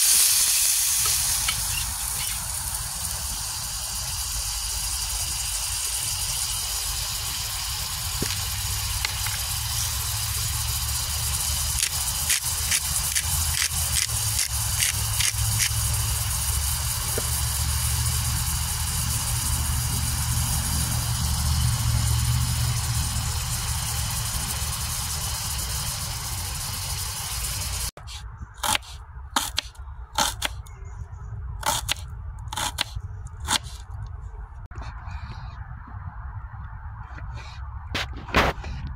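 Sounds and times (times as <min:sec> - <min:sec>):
potatoes sizzling in fat: 0:00.0 - 0:28.0.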